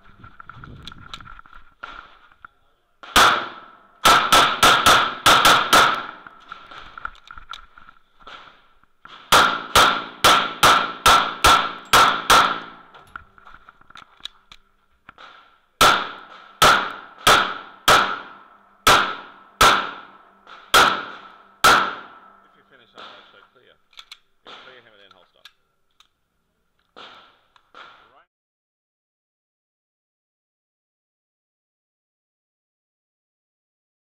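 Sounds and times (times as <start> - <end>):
pistol shots: 3.0 - 6.8, 8.3 - 13.0, 15.2 - 25.1, 26.9 - 28.2.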